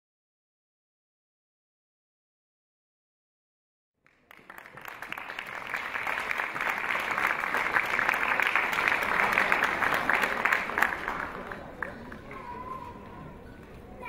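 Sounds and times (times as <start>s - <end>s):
audience applauding: 4.0s - 12.4s.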